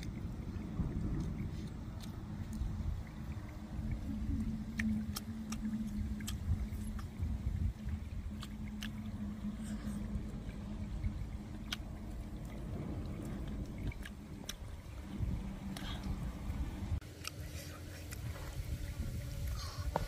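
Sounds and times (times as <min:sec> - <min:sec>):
low hum and rumble: 0:00.0 - 0:20.0
chewing with mouth clicks: 0:03.4 - 0:14.8.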